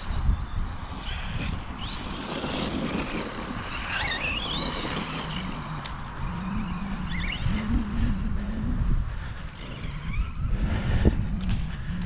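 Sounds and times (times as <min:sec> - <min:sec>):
rc truck motor whine: 0:00.0 - 0:08.3.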